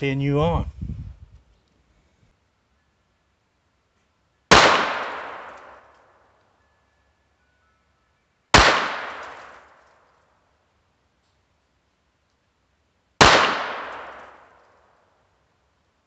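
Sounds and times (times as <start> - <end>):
pistol shots: 4.5 - 5.9, 8.5 - 9.9, 13.2 - 14.8.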